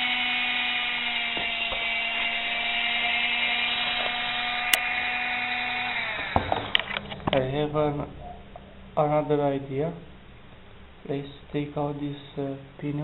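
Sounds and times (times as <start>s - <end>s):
hand mixer motor whine: 0.0s - 7.1s.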